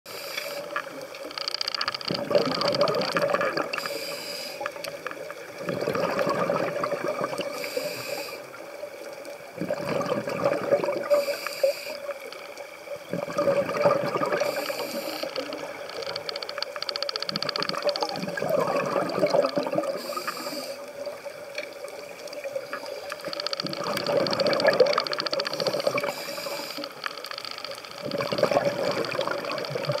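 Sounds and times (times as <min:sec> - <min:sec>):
faint steady hum: 0:00.1 - 0:30.0
exhaled air bubbling: 0:01.9 - 0:03.9, 0:04.8 - 0:07.8, 0:09.4 - 0:11.4, 0:12.9 - 0:30.0
diver inhaling through regulator: 0:03.8 - 0:04.8, 0:07.5 - 0:08.6, 0:11.1 - 0:12.1, 0:14.3 - 0:15.6, 0:19.9 - 0:20.9, 0:25.5 - 0:27.0.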